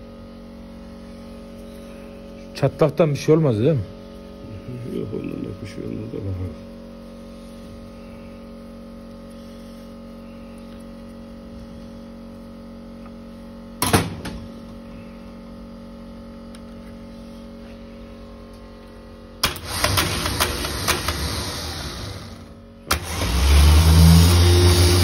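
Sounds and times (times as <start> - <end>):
electrical hum: 0.0 - 25.0
starter motor burst: 19.4 - 25.0.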